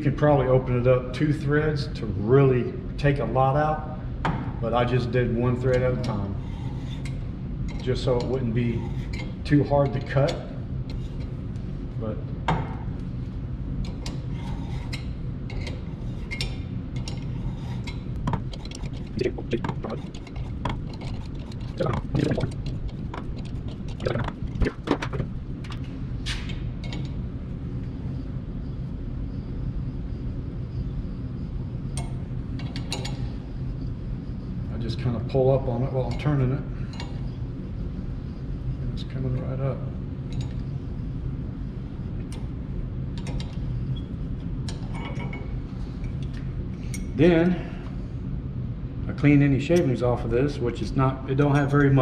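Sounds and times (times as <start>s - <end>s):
steady low hum: 0.0s - 52.0s
reamer clicking and scraping metal: 13.9s - 25.9s.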